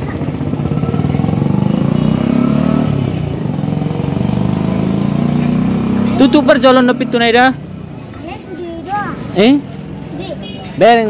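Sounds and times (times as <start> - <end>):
motorcycle engine running: 0.0 - 8.0.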